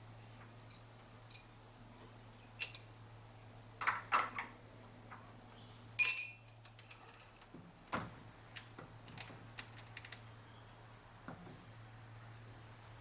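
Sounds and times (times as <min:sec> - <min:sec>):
steady low hum: 0:00.0 - 0:13.0
small metal clinks: 0:00.2 - 0:01.6, 0:02.6 - 0:03.0, 0:06.0 - 0:07.5.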